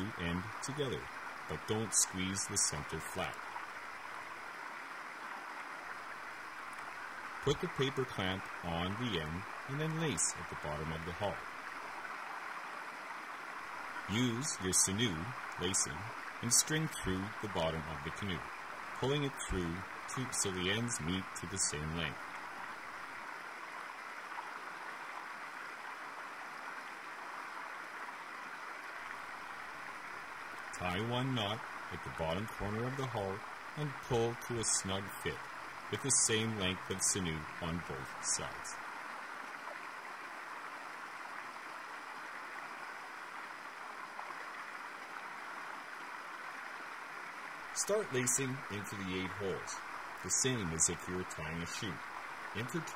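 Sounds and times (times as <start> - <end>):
steady background hiss: 0.0 - 52.9.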